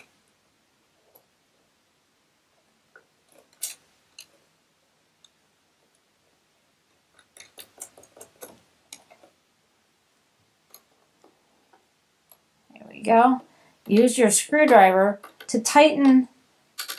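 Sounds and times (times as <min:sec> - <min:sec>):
metal plate and screws clicking: 0:02.9 - 0:04.5, 0:06.9 - 0:09.4, 0:13.8 - 0:16.9.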